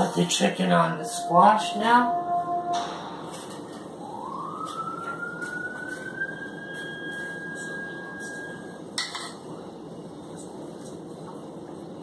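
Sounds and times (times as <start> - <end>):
siren-like rising tone: 0.8 - 8.8.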